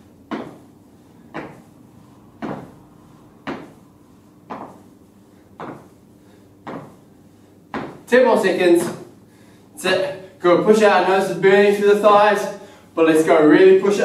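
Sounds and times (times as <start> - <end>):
feet thumping on rubber floor: 0.0 - 9.2.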